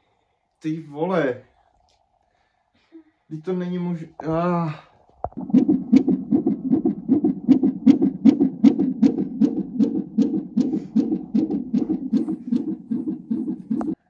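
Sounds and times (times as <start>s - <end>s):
fetal heartbeat through monitor: 5.2s - 14.0s.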